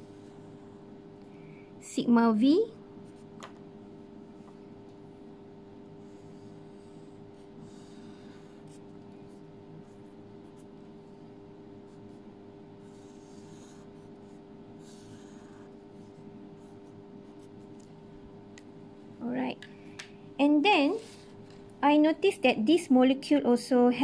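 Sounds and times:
low background hum: 0:00.0 - 0:24.0
marker scratching on paper: 0:06.0 - 0:10.8, 0:11.9 - 0:17.8.

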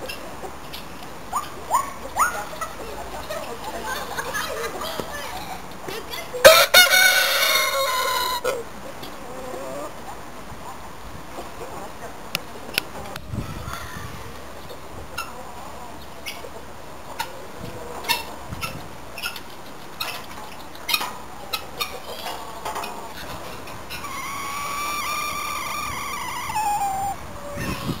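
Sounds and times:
farmyard fowl calling: 0:06.1 - 0:09.9, 0:15.1 - 0:28.0
rooster crowing: 0:06.4 - 0:08.5.

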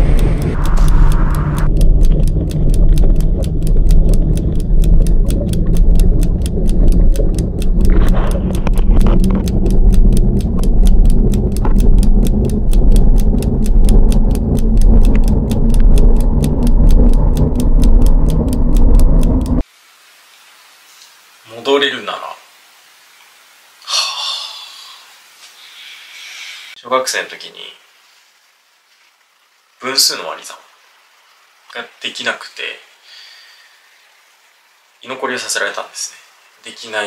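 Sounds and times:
fast even ticking: 0:00.0 - 0:19.6
muffled underwater rumble: 0:00.0 - 0:19.6.

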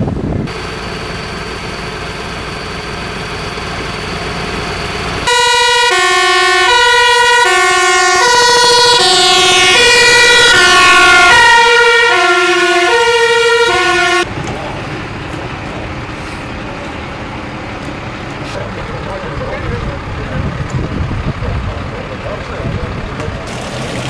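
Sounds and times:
truck engine rumble: 0:00.0 - 0:24.0
fire engine two-tone siren: 0:00.5 - 0:14.3.

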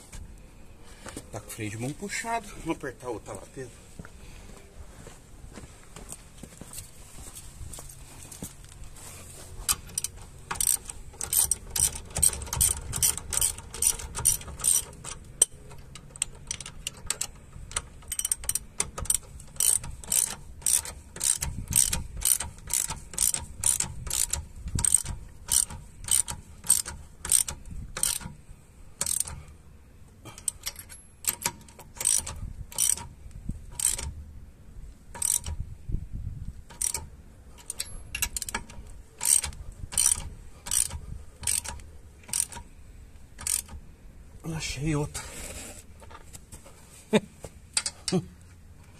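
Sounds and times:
ratchet wrench clicking: 0:09.7 - 0:28.4, 0:29.0 - 0:29.4, 0:30.3 - 0:33.1, 0:33.7 - 0:34.2, 0:35.1 - 0:35.6, 0:36.7 - 0:42.7, 0:43.4 - 0:43.8.

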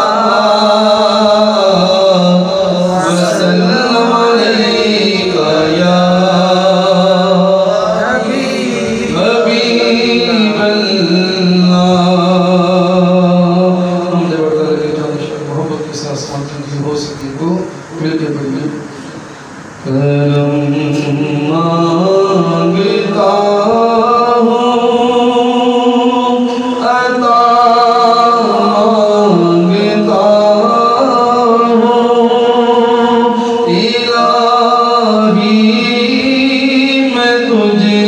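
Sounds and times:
man singing a chant: 0:00.0 - 0:16.2, 0:19.8 - 0:38.0
singer breathing: 0:33.4 - 0:33.7.

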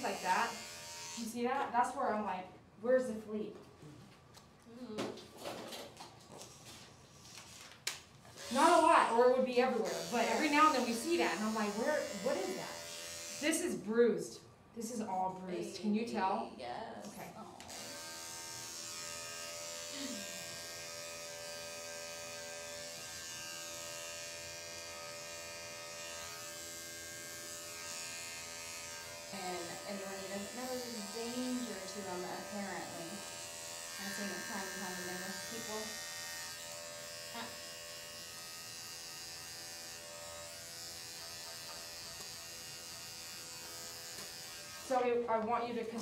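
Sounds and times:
electric clippers buzzing: 0:00.0 - 0:02.0, 0:08.3 - 0:13.9, 0:17.0 - 0:46.0.

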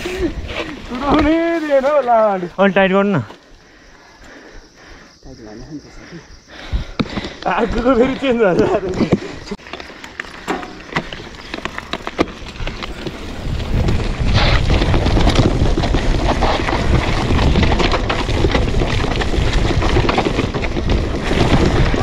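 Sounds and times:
tyres and frame rattling over dirt: 0:00.0 - 0:03.9, 0:04.9 - 0:22.0
bike clicks and knocks: 0:06.9 - 0:22.0
wind buffeting microphone: 0:10.8 - 0:22.0.

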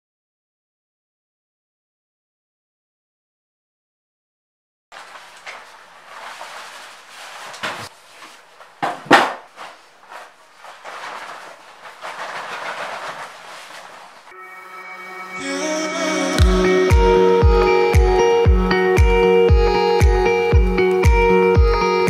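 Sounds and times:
paintbrush scratching on frame: 0:05.0 - 0:14.3
sharp knocks: 0:08.8 - 0:09.6.

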